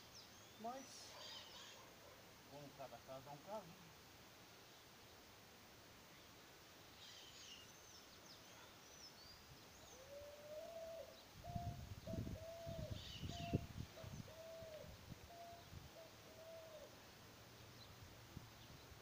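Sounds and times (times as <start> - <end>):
birds chirping: 0.0 - 2.8, 6.1 - 19.0
bird hooting call: 9.9 - 17.0.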